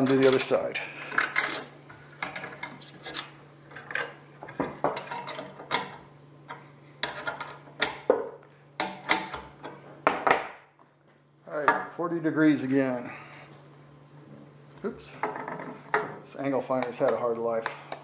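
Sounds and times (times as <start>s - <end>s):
metal tools clinking and clanking: 0.0s - 4.2s, 4.9s - 5.9s.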